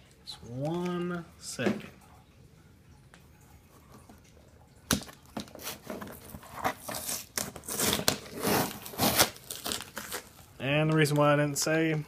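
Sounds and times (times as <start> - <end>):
packaging torn and crinkled: 6.6 - 10.5.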